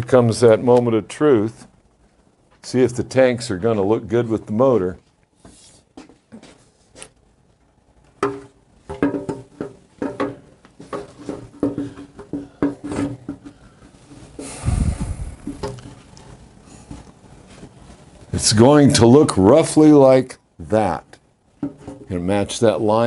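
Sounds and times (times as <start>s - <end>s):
rustle and rub: 5.4s - 7.2s
metal knocks and scrapes: 8.2s - 13.6s, 18.6s - 19.4s.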